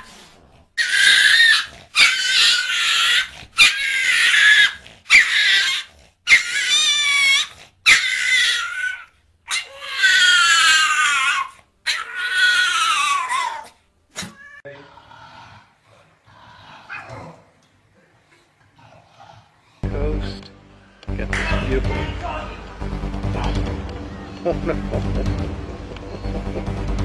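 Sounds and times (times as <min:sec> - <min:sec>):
dog and cat squealing snarling: 0:00.0 - 0:17.5.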